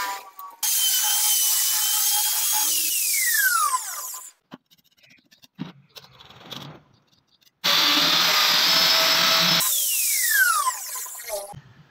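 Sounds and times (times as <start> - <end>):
wood trimmer running: 7.6 - 11.5.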